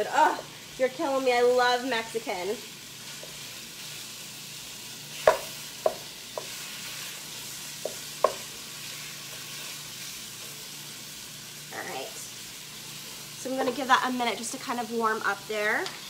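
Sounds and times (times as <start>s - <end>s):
meat sizzling in frying pan: 0.0s - 16.0s
wooden spatula knocking pan: 5.2s - 6.6s, 7.8s - 8.5s.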